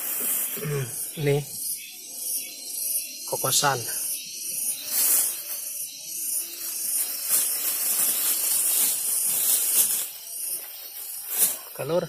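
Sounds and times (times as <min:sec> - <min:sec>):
close hissy rustling: 0:00.0 - 0:01.2, 0:06.4 - 0:11.9.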